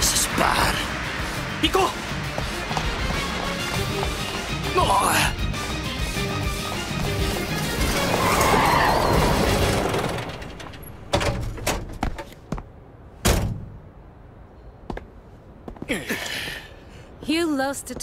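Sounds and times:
heavy boots stepping on dirt: 0:02.2 - 0:04.7.

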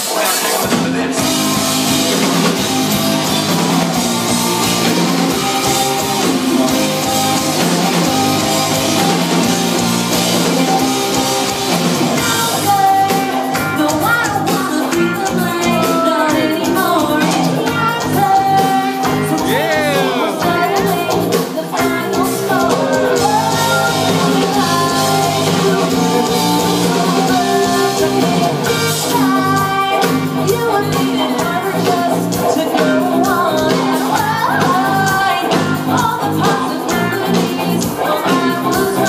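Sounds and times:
live rock band playing: 0:00.0 - 0:39.0
person singing: 0:12.2 - 0:39.0.

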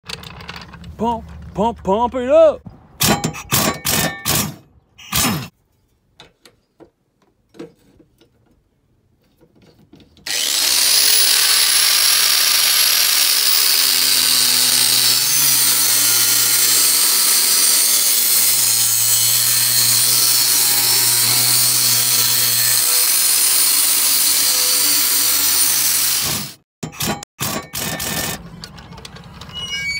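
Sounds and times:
impact wrench bursts: 0:10.3 - 0:18.0
angle grinder grinding steel: 0:10.3 - 0:28.4.

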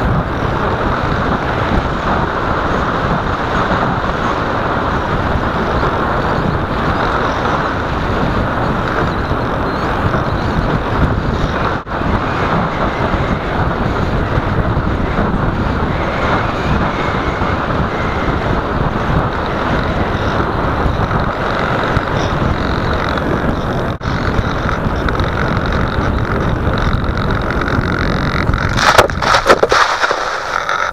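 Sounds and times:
electric motor and propeller hum: 0:00.0 - 0:30.9
wind rush: 0:00.0 - 0:30.9.

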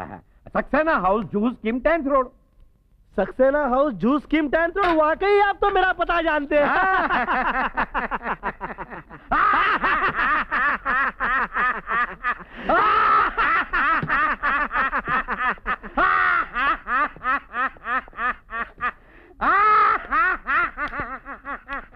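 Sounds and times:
men laughing hysterically: 0:06.5 - 0:21.9.

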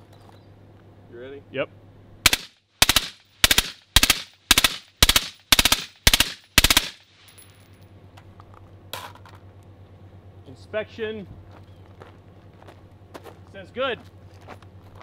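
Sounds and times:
suppressed machine gun bursts: 0:02.2 - 0:07.5.

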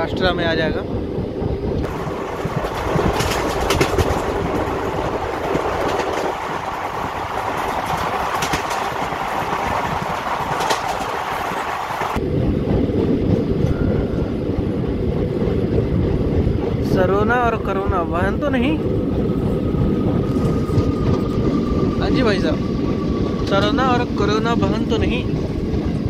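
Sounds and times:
train wheels rumbling on rail: 0:00.0 - 0:26.0
faint clickety-clack: 0:02.6 - 0:04.8, 0:07.4 - 0:12.2.

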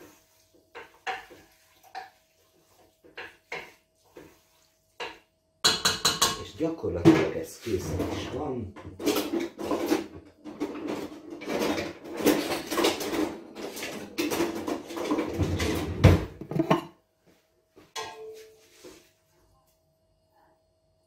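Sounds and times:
metal cookware clattering in a pot: 0:00.7 - 0:02.2, 0:05.0 - 0:07.4, 0:08.1 - 0:16.9, 0:17.9 - 0:18.6.

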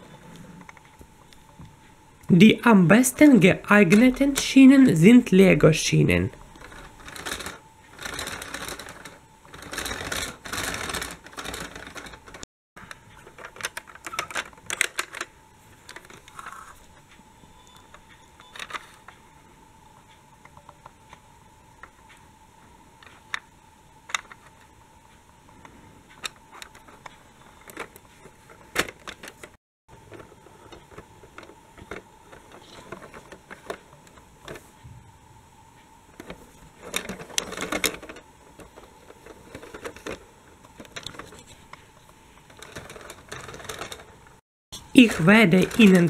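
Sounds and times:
faint steady hum: 0:00.0 - 0:46.0
plastic toy train clicking and knocking: 0:03.7 - 0:04.6, 0:06.6 - 0:16.8, 0:18.4 - 0:19.1, 0:24.1 - 0:24.7, 0:26.2 - 0:34.6, 0:36.2 - 0:41.6, 0:42.5 - 0:44.2, 0:45.1 - 0:46.0
plastic toy rattling: 0:06.5 - 0:12.4, 0:13.2 - 0:15.3, 0:30.1 - 0:34.6, 0:36.2 - 0:41.6, 0:42.5 - 0:44.2, 0:45.1 - 0:46.0.

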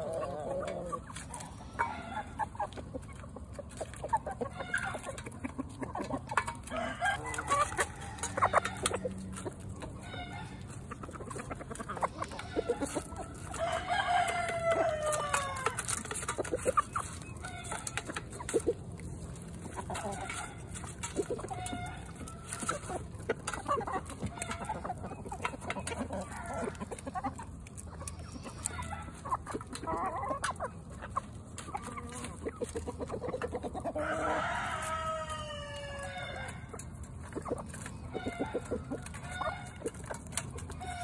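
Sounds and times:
chickens clucking: 0:00.0 - 0:41.0
rooster crowing: 0:13.5 - 0:15.8, 0:34.0 - 0:36.4.

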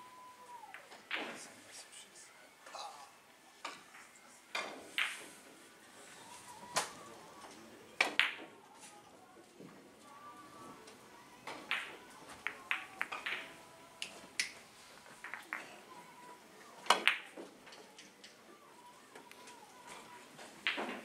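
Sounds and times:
billiard balls clicking: 0:11.6 - 0:14.6, 0:15.2 - 0:15.8, 0:16.9 - 0:17.4.

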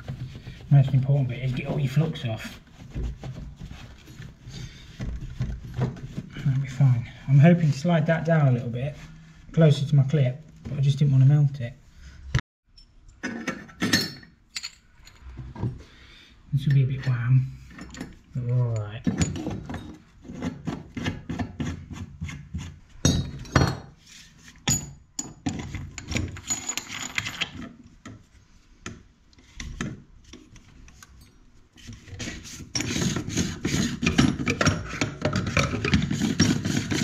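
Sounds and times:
rubbing and scraping on copper pipe: 0:00.0 - 0:09.8, 0:17.1 - 0:23.0, 0:31.7 - 0:37.0.

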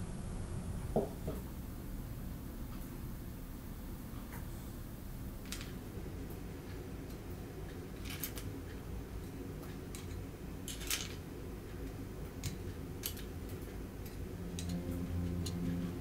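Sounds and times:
steady low hum: 0:00.0 - 0:16.0
metal tongs clicking: 0:12.4 - 0:15.8.

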